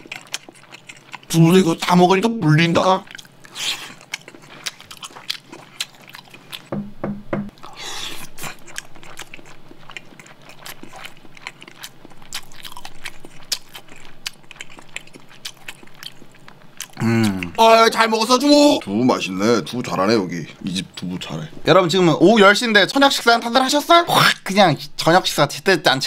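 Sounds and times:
person chewing wetly: 0.0 - 1.9, 3.0 - 6.7, 7.5 - 17.6.

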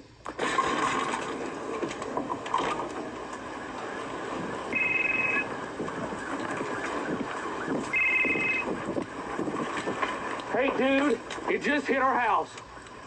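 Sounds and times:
wind and rain roaring: 0.0 - 13.0
two-tone electronic ring: 4.7 - 5.5, 7.9 - 8.7.

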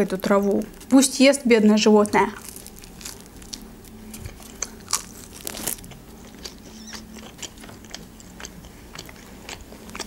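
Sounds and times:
person chewing food: 2.4 - 10.0.

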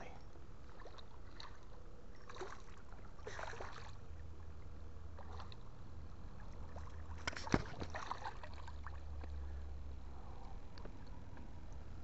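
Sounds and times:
steady low rumble: 0.0 - 12.0
fish splashing at water surface: 6.7 - 9.3.

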